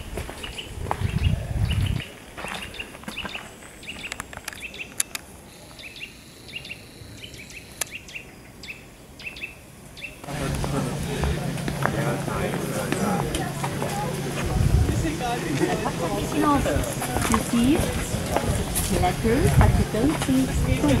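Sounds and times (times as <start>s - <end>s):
small birds chirping: 0.4s - 10.4s.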